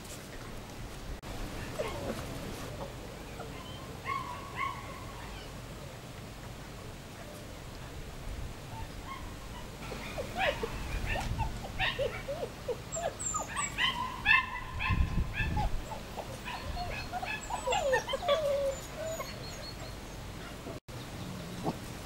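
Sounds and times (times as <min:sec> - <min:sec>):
puppies whimpering and yipping: 0:01.6 - 0:05.7, 0:08.7 - 0:20.8.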